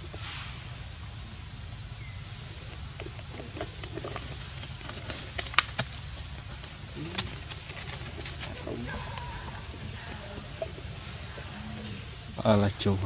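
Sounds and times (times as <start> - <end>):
high-pitched hiss: 0.0 - 3.3, 8.6 - 13.0.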